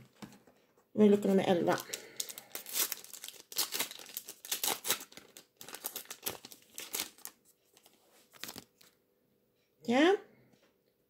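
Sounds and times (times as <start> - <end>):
plastic wrapper tearing and crinkling: 1.2 - 9.0.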